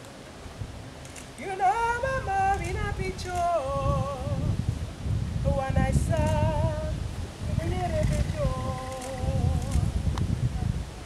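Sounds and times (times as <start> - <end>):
woman singing unaccompanied: 1.4 - 4.7, 5.4 - 10.2.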